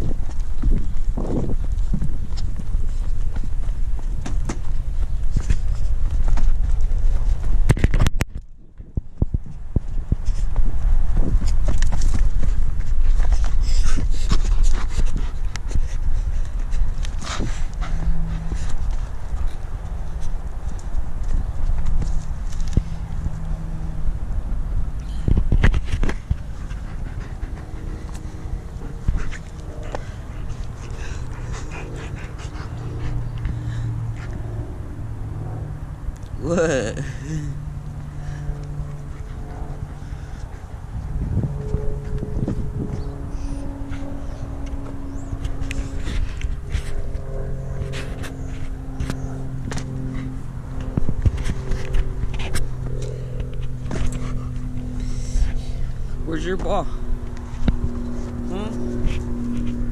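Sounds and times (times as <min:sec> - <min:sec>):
low motor hum: 0:00.0 - 0:59.9
dog panting: 0:13.1 - 0:20.9, 0:26.1 - 0:34.6, 0:47.9 - 0:59.9.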